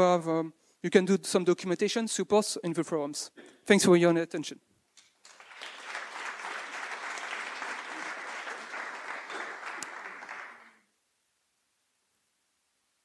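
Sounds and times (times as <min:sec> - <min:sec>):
audience applauding: 0:05.2 - 0:10.8.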